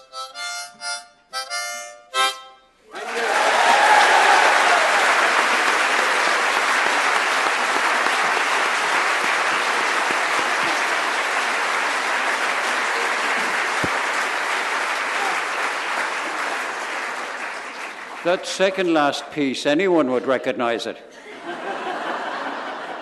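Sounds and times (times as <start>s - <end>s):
congregation applauding: 2.9s - 19.4s.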